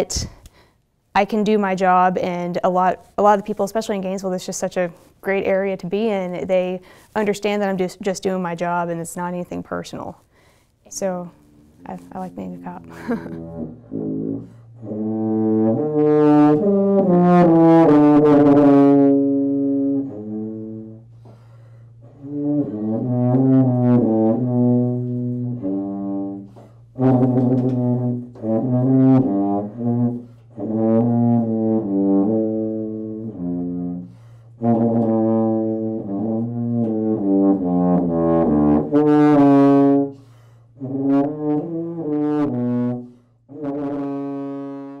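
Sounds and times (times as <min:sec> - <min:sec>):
tuba playing slow melody: 0:11.0 - 0:45.0
low held note: 0:11.3 - 0:15.8.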